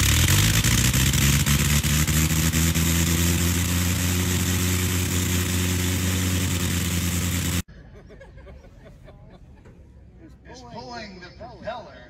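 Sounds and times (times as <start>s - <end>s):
rotary aero engine running: 0.0s - 7.7s.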